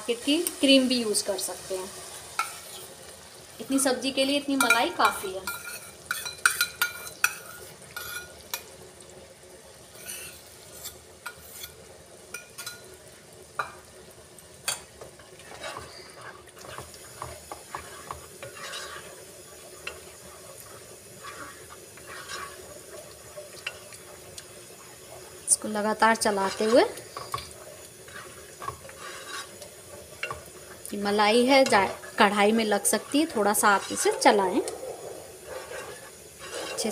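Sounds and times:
faint sizzle: 0:00.0 - 0:36.9
spatula scraping a pan: 0:02.4 - 0:03.0, 0:04.6 - 0:08.7, 0:09.9 - 0:12.9, 0:14.7 - 0:36.9.

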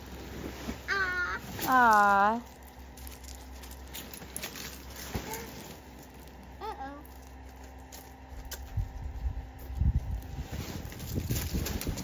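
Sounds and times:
blower fan humming: 0:00.0 - 0:12.0
small child vocal sounds: 0:00.9 - 0:01.6.

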